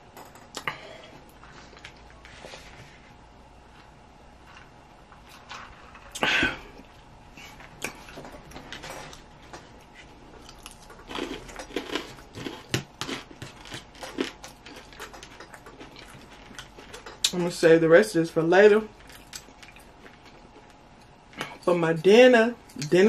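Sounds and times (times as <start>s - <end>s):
chewing and crunching salad: 9.1s - 17.6s, 18.9s - 21.6s.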